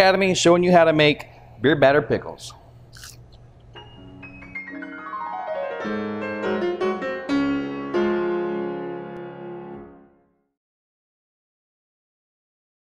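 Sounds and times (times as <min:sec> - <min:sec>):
piano jingle: 0:03.8 - 0:10.2.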